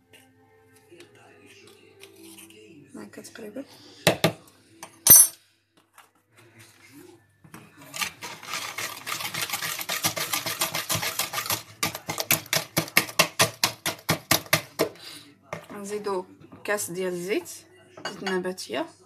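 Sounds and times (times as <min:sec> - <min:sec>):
sharp metallic clink: 0:05.1 - 0:05.4
whisk rattling against bowl: 0:07.9 - 0:14.9.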